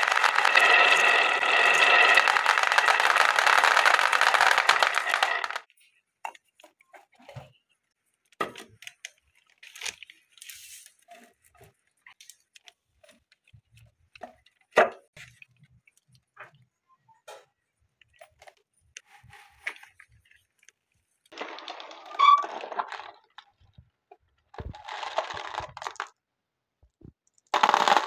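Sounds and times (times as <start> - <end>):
marbles clattering into plastic tray: 0.0 - 5.7, 21.3 - 23.6, 24.6 - 26.2, 27.3 - 28.0
marbles rattling down wooden tracks: 0.0 - 5.7, 21.3 - 23.5, 24.6 - 26.2, 27.4 - 28.0
wooden pieces clicking and knocking: 0.0 - 5.7, 27.1 - 28.0.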